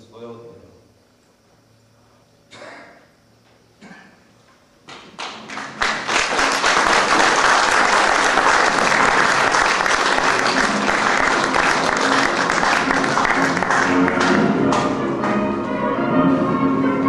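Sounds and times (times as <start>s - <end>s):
audience applause: 5.1s - 15.0s.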